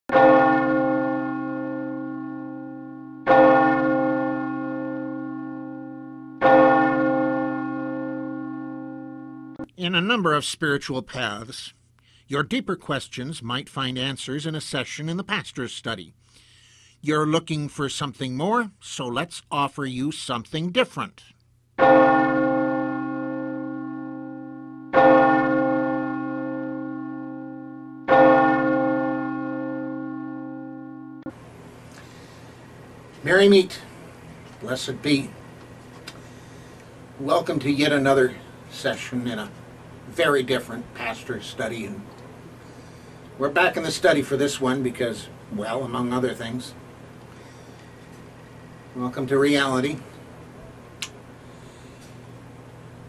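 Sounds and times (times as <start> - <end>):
deep bell tolling: 0.1 - 9.7, 21.8 - 31.4.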